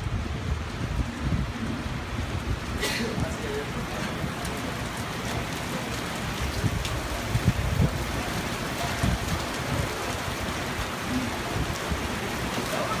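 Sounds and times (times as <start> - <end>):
rain falling: 0.0 - 13.0.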